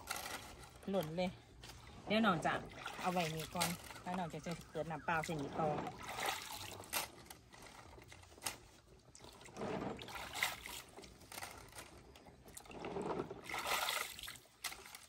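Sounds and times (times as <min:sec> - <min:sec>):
hands sloshing water in basin: 0:01.6 - 0:07.2, 0:08.6 - 0:11.4, 0:12.2 - 0:15.0.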